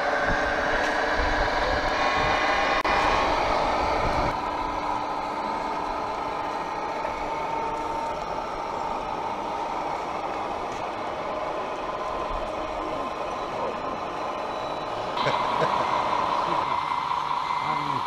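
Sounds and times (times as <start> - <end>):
simulated engine drone from speakers: 0.0 - 18.0.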